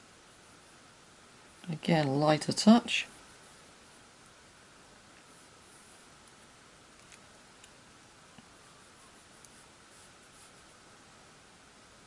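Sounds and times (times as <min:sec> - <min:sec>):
faint steady hiss: 0:00.0 - 0:12.0
sponge rubbing on paper: 0:09.5 - 0:10.7.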